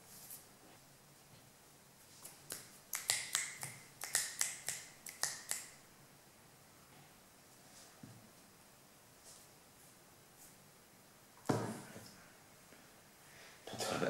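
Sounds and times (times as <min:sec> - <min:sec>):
fingers snapping: 0:02.2 - 0:05.8.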